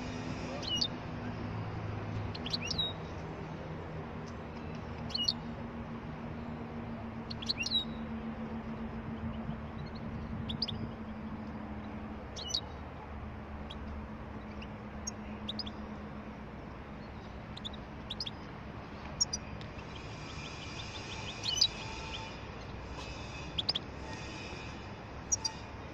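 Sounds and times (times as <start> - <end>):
bird calling and twittering: 2.2 - 3.1, 4.7 - 5.5, 7.2 - 8.1, 9.0 - 12.8, 13.5 - 16.1, 16.9 - 25.8.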